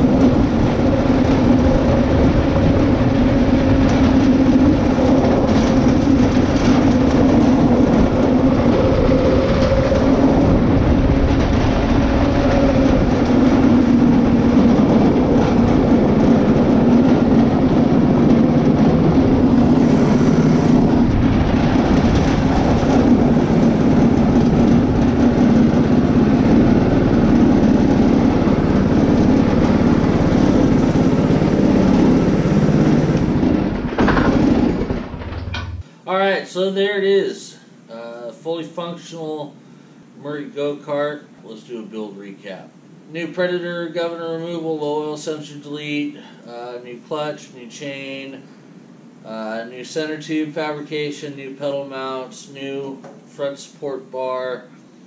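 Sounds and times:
small engine humming: 0.0s - 3.8s, 12.9s - 21.2s, 22.4s - 35.3s.

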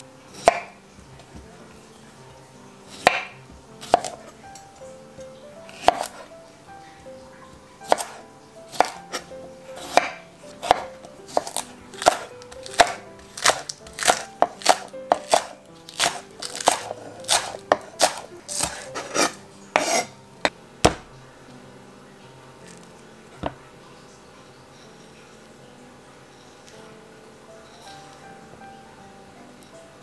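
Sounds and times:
knife chopping on wooden board: 0.4s - 0.8s, 2.9s - 4.2s, 5.7s - 6.2s, 7.8s - 20.1s, 20.8s - 21.1s.

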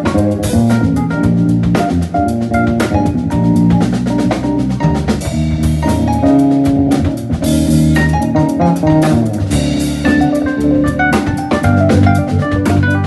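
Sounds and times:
bass guitar line: 0.0s - 13.0s
drums and cymbals beat: 0.0s - 13.0s
electric keyboard chords: 0.0s - 13.0s.

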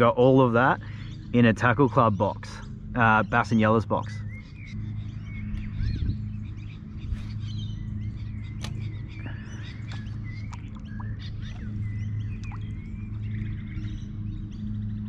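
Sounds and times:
small birds chirping: 0.0s - 15.0s
steady low hum: 0.0s - 15.0s
sharp clicks: 8.6s - 8.9s.

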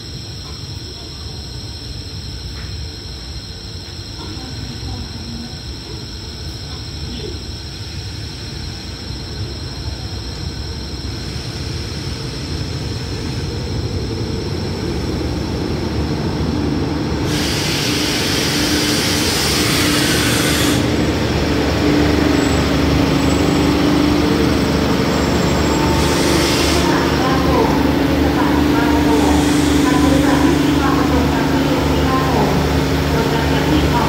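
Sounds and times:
diesel train engine and wheels rumbling: 0.0s - 34.0s
hiss: 17.2s - 20.9s
steady droning tone: 18.1s - 34.0s.

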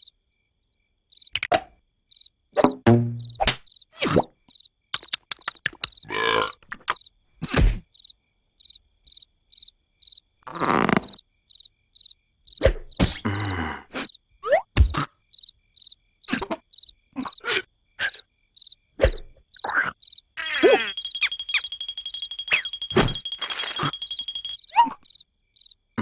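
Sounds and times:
crickets chirping: 0.0s - 26.0s
cartoon vocal squeaks: 19.0s - 21.0s.

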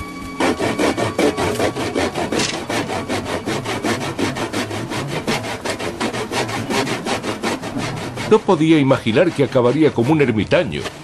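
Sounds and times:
hand saw cutting wood: 0.3s - 11.0s.

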